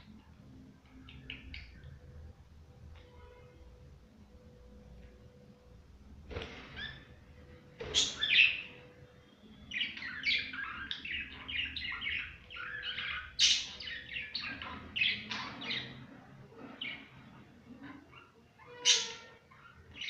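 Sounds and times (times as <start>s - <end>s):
budgerigars chirping and chattering: 7.8s - 8.8s, 9.7s - 16.1s.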